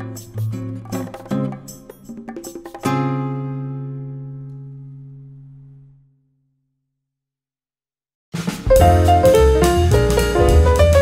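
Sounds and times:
jazz music with drums and bass: 8.4s - 11.0s.

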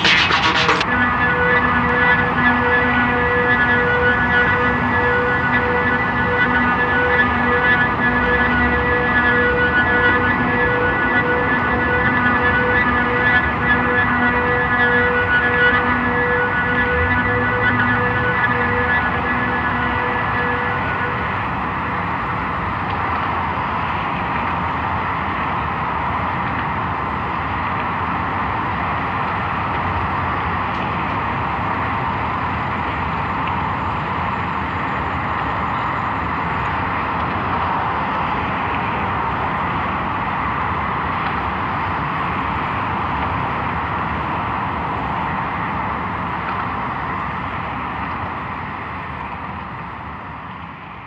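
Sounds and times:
traffic-like rush: 0.0s - 51.0s
dense wash of noise: 15.4s - 33.0s.

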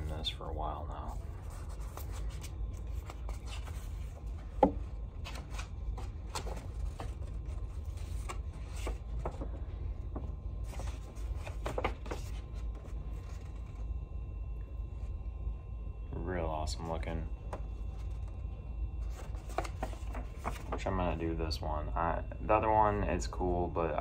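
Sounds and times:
steady low hum: 0.0s - 24.0s
packaging rustling: 19.0s - 20.8s.

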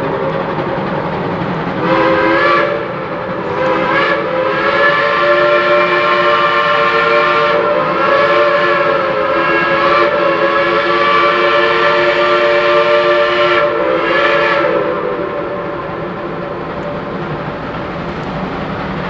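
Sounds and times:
steam locomotive chime whistle: 1.8s - 16.4s.

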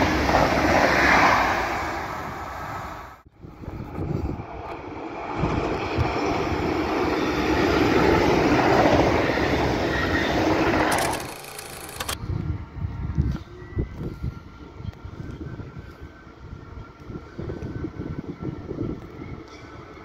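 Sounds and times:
train wheels rushing on rail: 0.0s - 3.0s, 3.9s - 12.2s
wind gusts on microphone: 0.0s - 10.9s, 12.0s - 20.0s.

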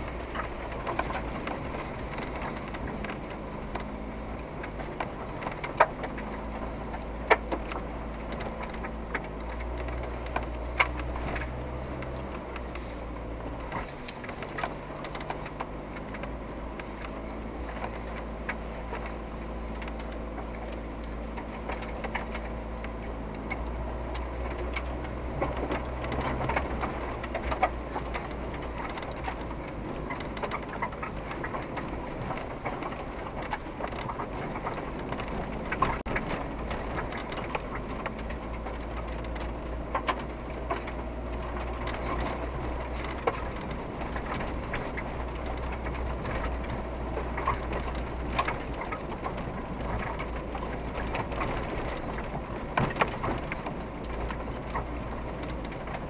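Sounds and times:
car body rattling over bumps: 0.0s - 56.0s
engine hum: 0.0s - 56.0s.

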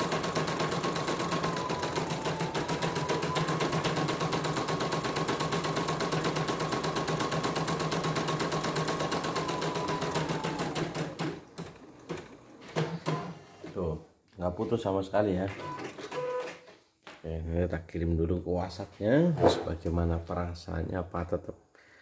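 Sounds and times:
embroidery machine stitching: 0.0s - 13.7s.

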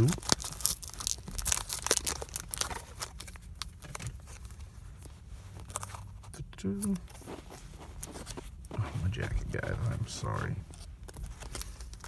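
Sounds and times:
foil wrapper tearing and crinkling: 0.0s - 4.0s.

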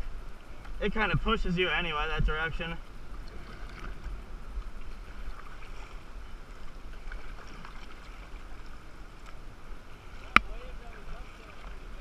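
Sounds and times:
wind rumble on microphone: 0.0s - 12.0s
water lapping at bow: 0.4s - 12.0s
paddle splashing in water: 3.0s - 12.0s.

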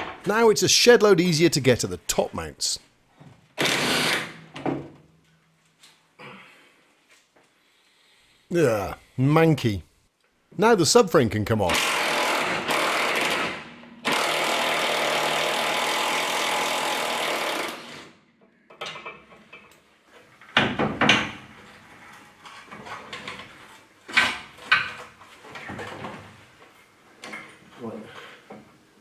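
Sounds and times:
impact wrench running: 3.6s - 4.4s, 11.7s - 18.1s.

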